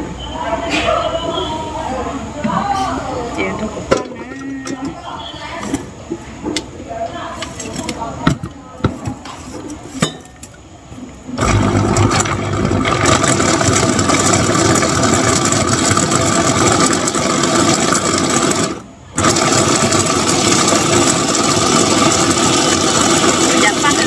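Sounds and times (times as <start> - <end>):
motor running: 11.4 - 24.0.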